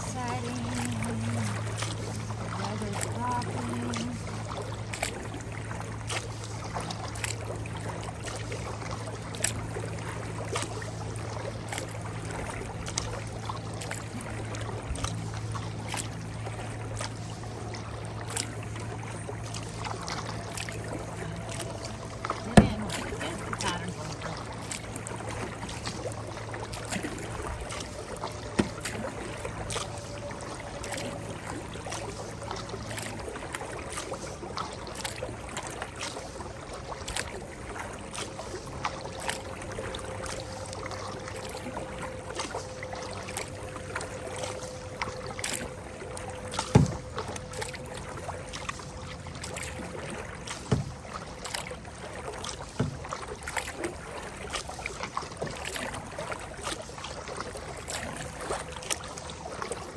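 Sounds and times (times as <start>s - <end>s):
paddle splashing in water: 0.0s - 59.9s
paddle knocks: 21.5s - 23.8s, 28.5s - 29.8s, 46.5s - 47.8s.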